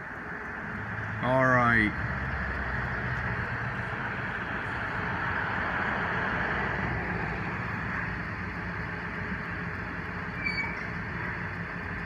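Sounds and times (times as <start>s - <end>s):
ambulance engine running: 0.0s - 12.0s
brief high squeak: 10.4s - 10.9s.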